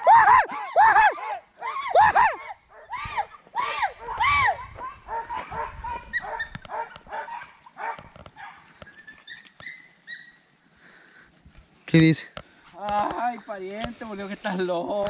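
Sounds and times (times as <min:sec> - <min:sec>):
dogs yelping: 0:00.0 - 0:10.6.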